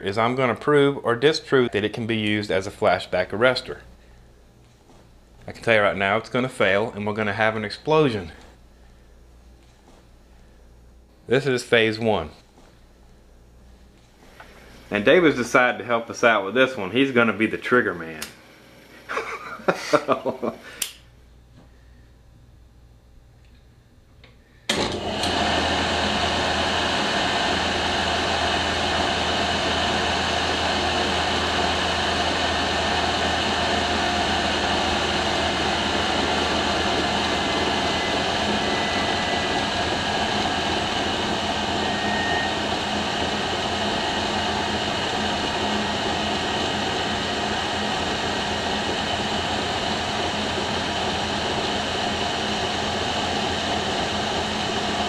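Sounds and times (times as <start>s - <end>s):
electric motor whirring: 25.0s - 55.0s.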